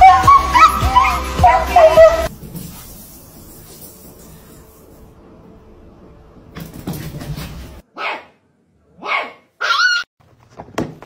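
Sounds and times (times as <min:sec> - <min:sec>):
dog barking: 0:07.9 - 0:08.4, 0:09.0 - 0:10.0.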